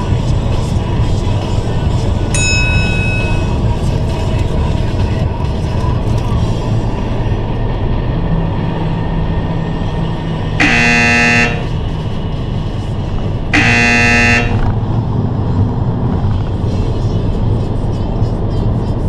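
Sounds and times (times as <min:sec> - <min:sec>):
road noise inside moving car: 0:00.0 - 0:19.0
car horn blasts: 0:02.4 - 0:03.6, 0:10.6 - 0:11.8, 0:13.5 - 0:14.8.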